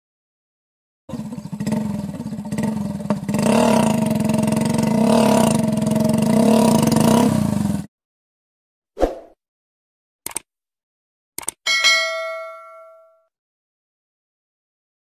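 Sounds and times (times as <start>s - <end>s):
motorcycle engine revving: 1.1s - 7.9s
sharp click: 10.2s - 10.5s, 11.4s - 11.6s.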